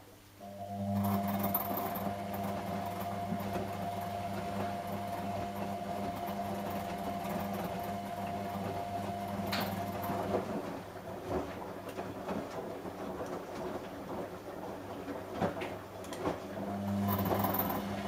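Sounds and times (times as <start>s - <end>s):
washing machine motor hum: 0.4s - 18.0s
laundry tumbling in drum: 3.2s - 18.0s.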